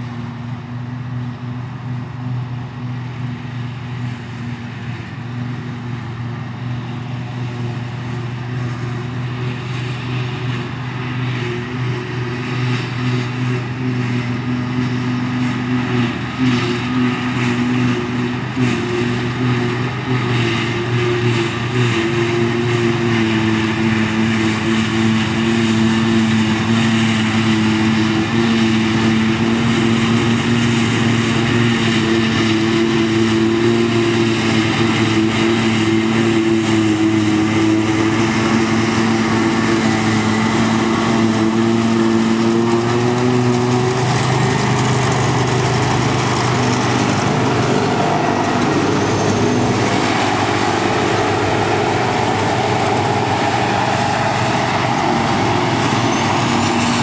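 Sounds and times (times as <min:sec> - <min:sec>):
harvester engine drone: 0:00.0 - 0:57.0
machinery whine: 0:00.0 - 0:57.0.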